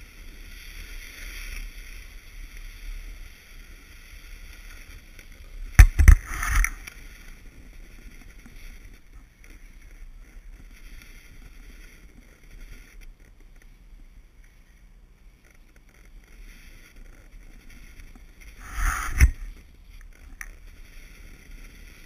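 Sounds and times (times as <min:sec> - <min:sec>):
snowboard scraping on snow: 0:00.0 - 0:13.2, 0:16.1 - 0:22.0
burst of knocks and scraping: 0:05.8 - 0:06.9, 0:18.6 - 0:19.6.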